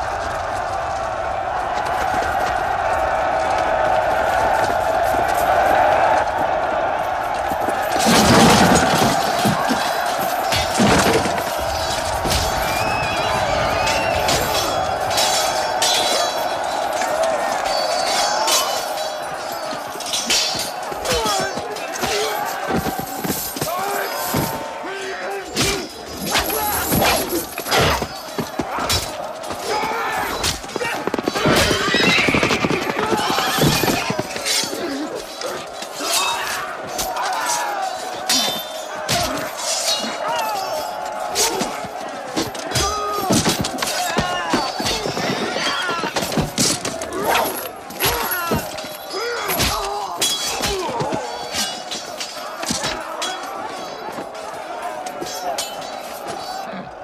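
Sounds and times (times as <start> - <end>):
clashes and thuds of fighting: 0.0 - 24.8, 25.4 - 36.0, 36.6 - 56.7
men shouting and screaming: 0.0 - 57.0
horses whinnying: 29.7 - 35.0.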